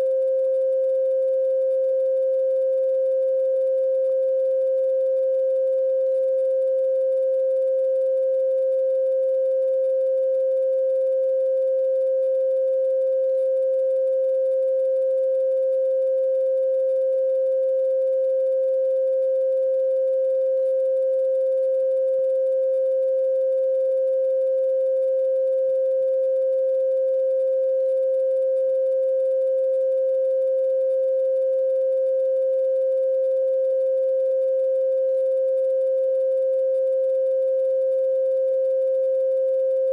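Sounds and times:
steady pure tone: 0:00.0 - 0:16.0.

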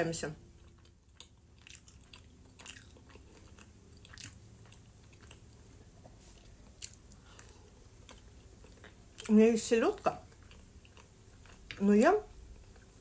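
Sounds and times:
close chewing of fried food: 0:00.4 - 0:13.0.

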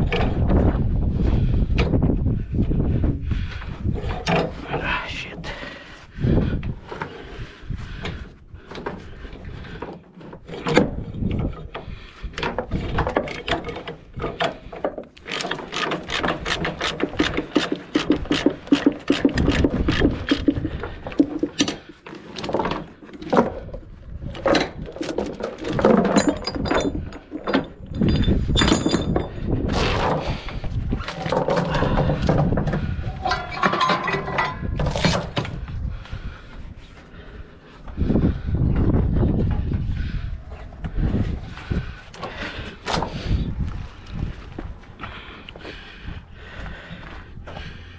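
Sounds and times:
chains rattling on wooden deck: 0:03.7 - 0:35.7, 0:41.0 - 0:43.5
hooks knocking: 0:08.0 - 0:35.6.

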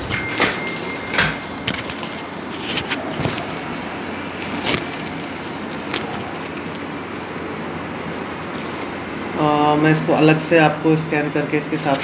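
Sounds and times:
paper crinkling and rustling: 0:00.0 - 0:07.0
steady room hiss: 0:00.0 - 0:12.0.

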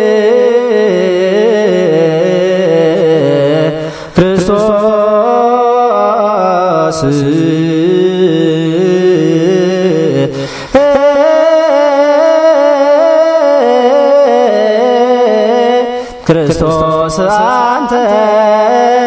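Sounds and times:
unaccompanied liturgical chant: 0:00.0 - 0:19.0
singer breathing: 0:03.8 - 0:04.2, 0:10.3 - 0:10.8, 0:16.0 - 0:16.3.

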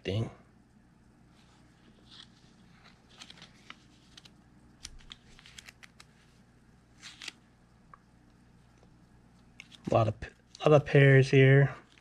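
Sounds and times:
paper banknotes flipping: 0:01.8 - 0:06.3, 0:07.0 - 0:07.4.

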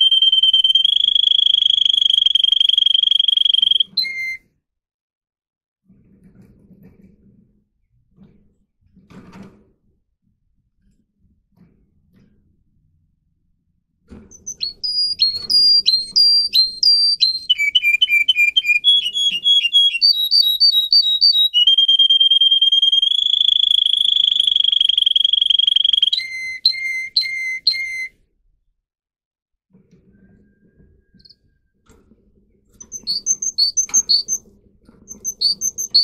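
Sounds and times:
canary singing: 0:00.0 - 0:04.4, 0:14.3 - 0:28.1, 0:32.8 - 0:36.0.

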